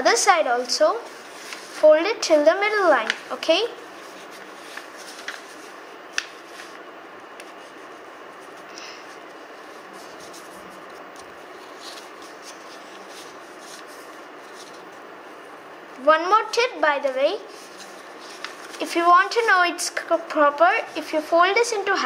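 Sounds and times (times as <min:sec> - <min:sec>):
background hiss: 0:00.0 - 0:22.0
paper folding and rustling: 0:01.0 - 0:01.8, 0:02.8 - 0:06.8, 0:07.4 - 0:15.0, 0:17.0 - 0:20.2
paper crackle: 0:01.2 - 0:01.8, 0:02.8 - 0:06.8, 0:07.4 - 0:15.0, 0:17.5 - 0:20.1.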